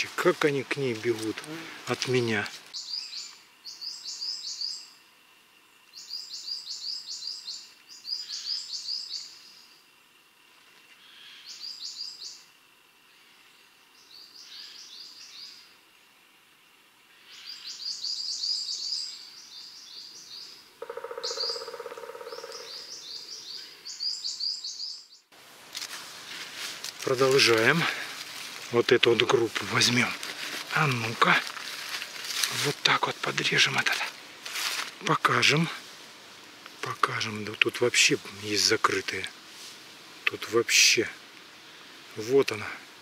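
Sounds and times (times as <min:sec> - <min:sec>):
songbird chirping: 0:00.0 - 0:10.0, 0:10.6 - 0:16.1, 0:17.0 - 0:25.4, 0:26.2 - 0:34.2.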